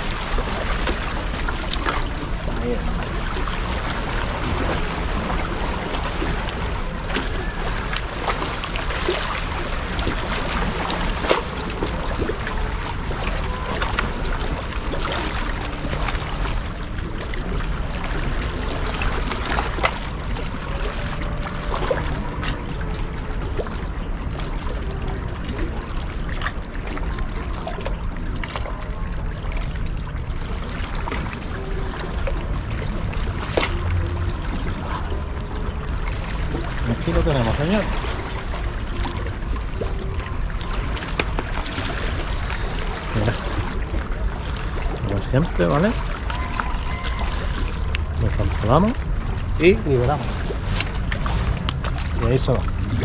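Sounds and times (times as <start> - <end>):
sea water washing against rocks: 0.0 - 53.0.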